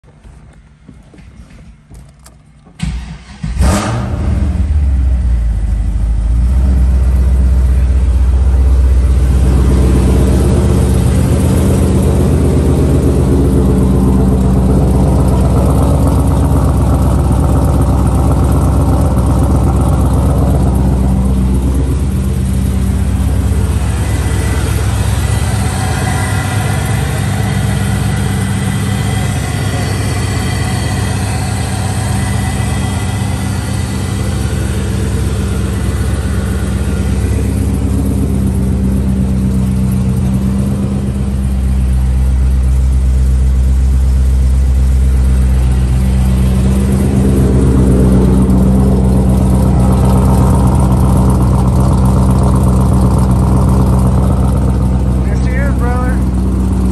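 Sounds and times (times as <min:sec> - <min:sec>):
car engine revving and idling: 0:01.9 - 0:56.9.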